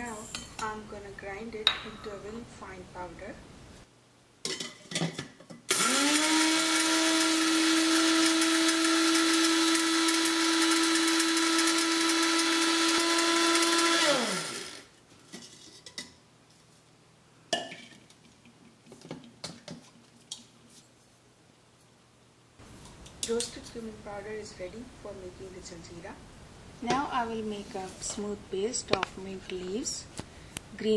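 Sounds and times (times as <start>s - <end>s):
electric spice grinder whining: 5.7s - 14.9s.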